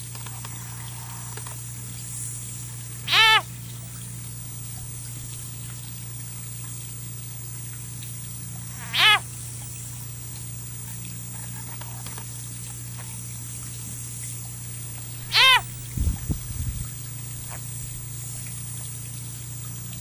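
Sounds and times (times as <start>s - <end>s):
steady low hum: 0.0s - 20.0s
frog screaming: 3.0s - 3.5s, 8.6s - 9.3s, 15.0s - 16.4s, 17.3s - 18.1s.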